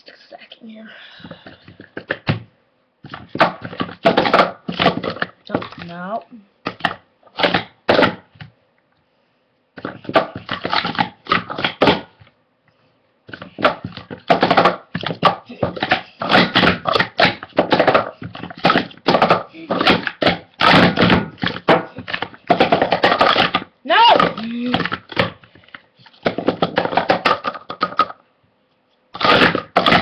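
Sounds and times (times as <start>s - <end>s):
plastic cups clacking: 1.2s - 2.4s, 3.0s - 6.0s, 6.6s - 8.3s, 9.8s - 12.2s, 13.3s - 28.2s, 29.2s - 30.0s.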